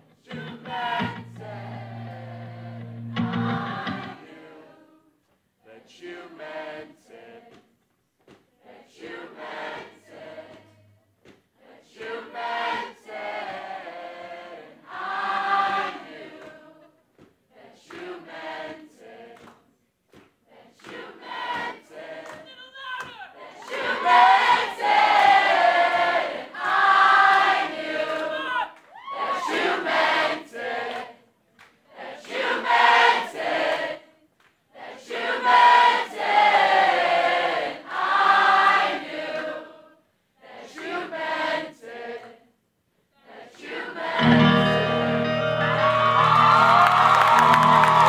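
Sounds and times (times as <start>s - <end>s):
crowd singing along: 0.0s - 7.7s, 8.6s - 11.0s, 11.6s - 19.7s, 20.4s - 22.6s, 23.3s - 42.6s, 43.2s - 48.0s
acoustic guitar chord ringing: 44.2s - 46.7s.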